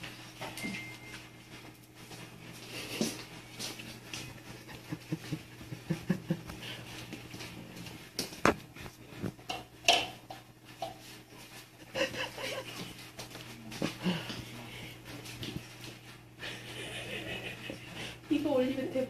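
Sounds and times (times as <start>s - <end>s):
steady low hum: 0.0s - 19.0s
plates and paws knocking: 8.2s - 14.5s.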